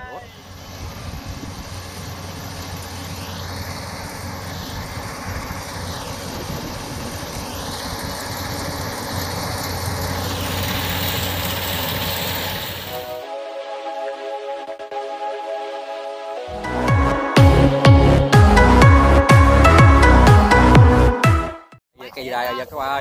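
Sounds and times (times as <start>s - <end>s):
combine harvester engine hum: 0.0s - 13.2s
cutter and threshing drum rattling: 0.4s - 13.1s
music: 13.0s - 21.8s.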